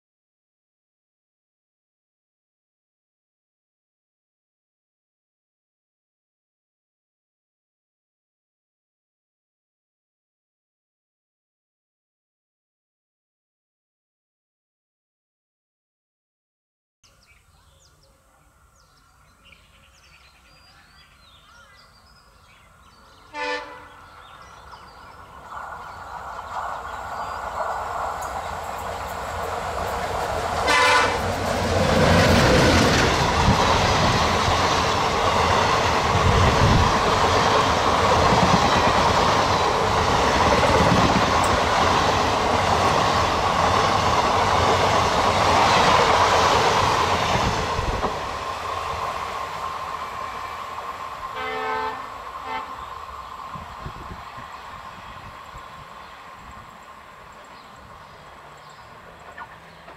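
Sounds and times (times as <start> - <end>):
diesel locomotive engine: 17.6 - 59.9
train horn blasts: 23.3 - 24.0, 30.6 - 31.4, 51.3 - 52.8.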